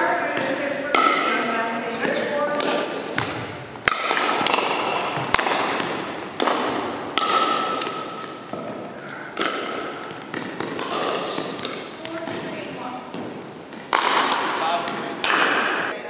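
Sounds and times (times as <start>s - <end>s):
paddles striking plastic ball: 2.0s - 15.8s.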